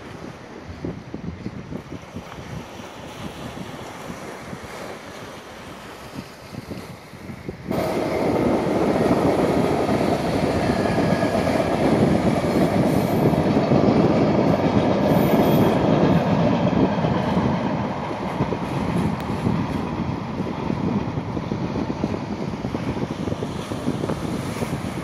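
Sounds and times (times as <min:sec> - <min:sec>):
passenger train rolling past: 0:07.4 - 0:25.0.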